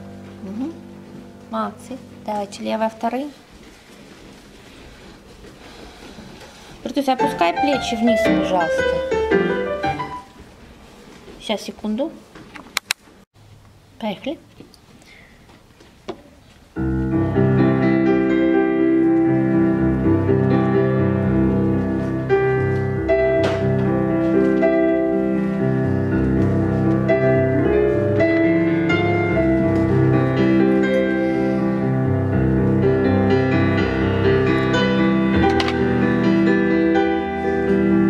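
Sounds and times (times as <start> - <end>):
solo piano: 6.9 - 10.4, 16.8 - 38.0.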